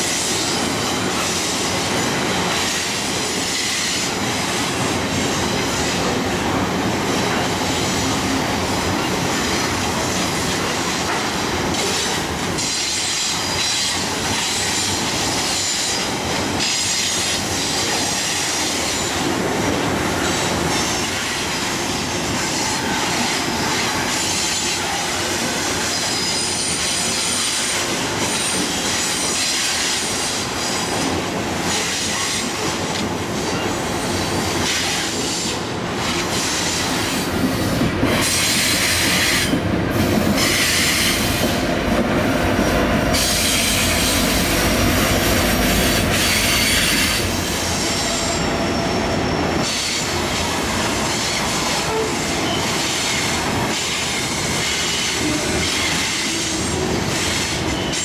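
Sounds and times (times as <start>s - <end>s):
diesel locomotive passing: 0.0s - 58.0s
train cars rumbling and clattering: 0.0s - 58.0s
wheels squealing against rail: 11.1s - 19.3s, 22.1s - 32.7s, 38.2s - 39.6s, 40.4s - 41.6s, 43.1s - 44.5s, 45.3s - 58.0s.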